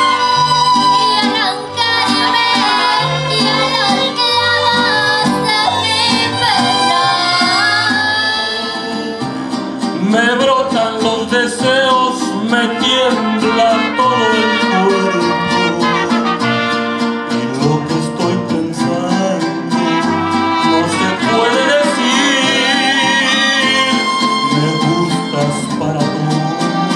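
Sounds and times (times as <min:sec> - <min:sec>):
violins: 0:00.0 - 0:09.9, 0:19.8 - 0:26.9
guitars: 0:00.0 - 0:26.9
mariachi band playing: 0:00.0 - 0:26.9.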